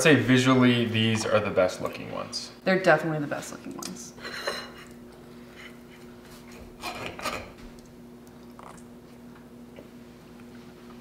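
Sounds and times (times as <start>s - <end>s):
faint steady hum: 0.0s - 11.0s
forks scraping on plates: 4.2s - 4.9s, 5.5s - 7.6s
cutlery clatters: 6.8s - 7.6s.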